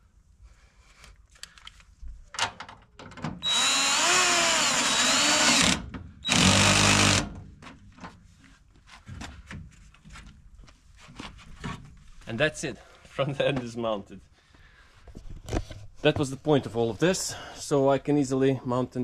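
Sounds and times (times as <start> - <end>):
cordless drill driving a bolt: 3.4 - 7.4.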